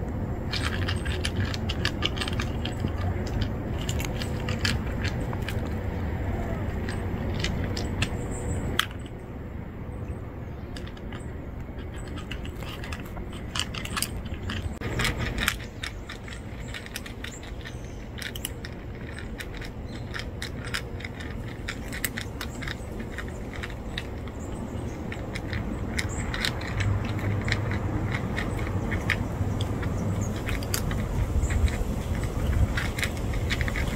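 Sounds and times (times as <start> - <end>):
cats crunching dry kibble: 0.0 - 9.2, 10.7 - 33.9
low steady rumble: 0.0 - 33.9.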